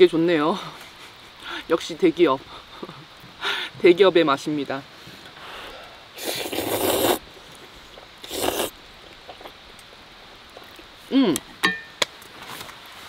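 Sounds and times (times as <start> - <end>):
noodles being slurped: 6.2 - 7.2, 8.2 - 9.6.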